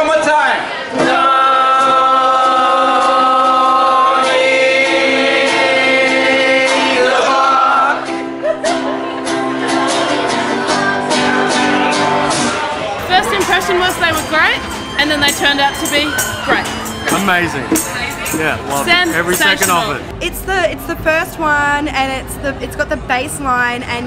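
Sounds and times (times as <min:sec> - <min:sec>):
voices singing held notes: 0:08.8 - 0:20.3.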